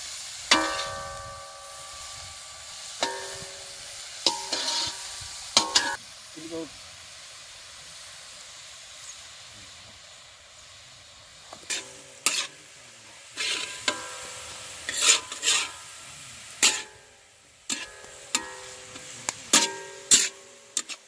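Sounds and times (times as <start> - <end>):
food sizzling: 0.0 - 21.0
metal spatula scraping iron pan: 0.5 - 6.0, 11.7 - 21.0.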